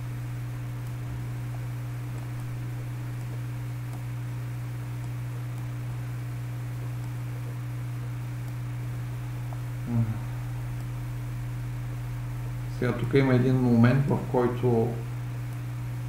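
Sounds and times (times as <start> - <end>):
low electrical hum: 0.0 - 16.0
microphone hiss: 0.0 - 16.0.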